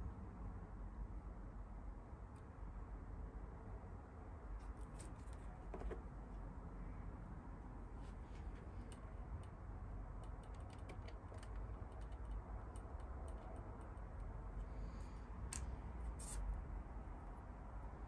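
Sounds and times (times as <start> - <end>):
low steady hum: 0.0 - 18.0
plastic parts clicking and tapping: 5.3 - 6.0, 10.2 - 14.3.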